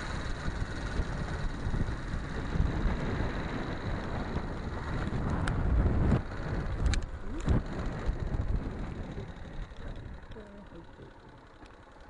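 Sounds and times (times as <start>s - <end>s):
wind buffeting microphone: 0.0s - 10.9s
motorcycle engine running: 0.0s - 12.0s
sharp clicks: 6.8s - 7.6s.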